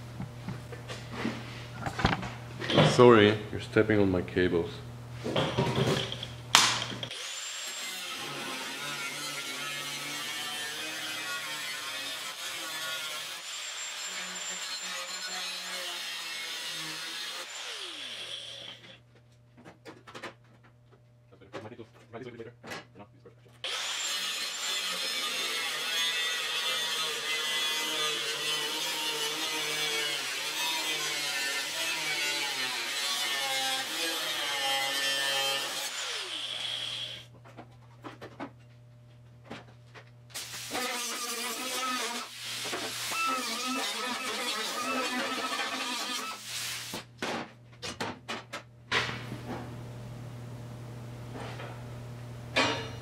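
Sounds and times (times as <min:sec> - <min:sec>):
angle grinder on sheet steel: 0:07.1 - 0:18.9, 0:23.6 - 0:37.2, 0:40.4 - 0:46.9.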